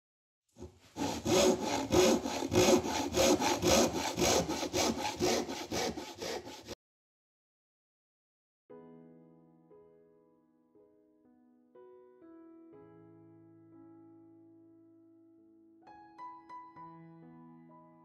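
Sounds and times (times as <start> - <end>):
hand saw cutting wood: 0.6 - 6.8.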